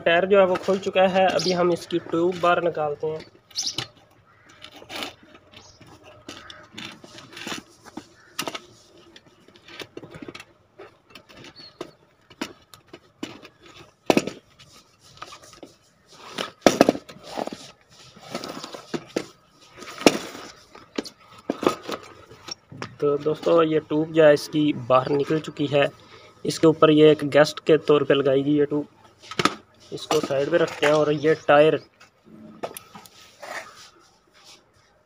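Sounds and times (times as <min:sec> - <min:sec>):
rubber rubbing and scraping: 0:00.2 - 0:10.4, 0:13.0 - 0:22.7, 0:32.4 - 0:35.0.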